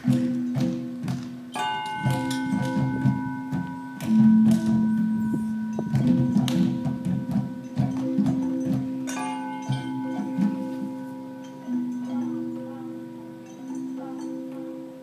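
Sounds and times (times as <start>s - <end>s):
tuned mallet percussion notes: 0.0s - 15.0s
hollow low strikes: 1.9s - 9.1s.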